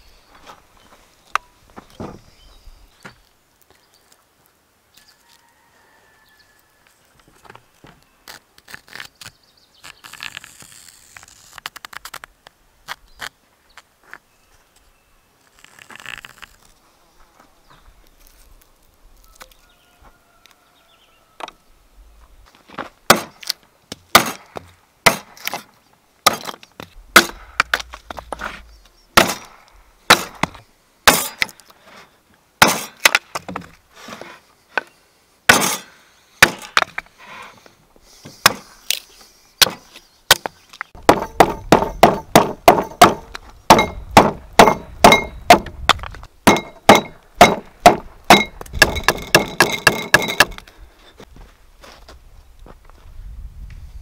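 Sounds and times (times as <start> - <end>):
hatchet chopping wood: 23.1 - 26.6, 27.2 - 28.1, 29.2 - 31.5, 32.6 - 33.6, 35.5 - 37.0, 38.4 - 38.7, 39.6 - 50.6.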